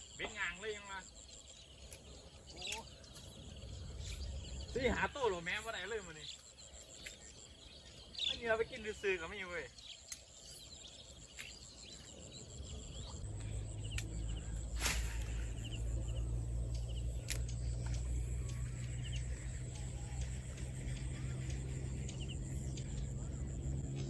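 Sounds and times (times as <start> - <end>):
sharp clicks: 10.0 - 10.5, 13.8 - 14.3, 16.0 - 24.0
low engine hum: 13.1 - 24.0.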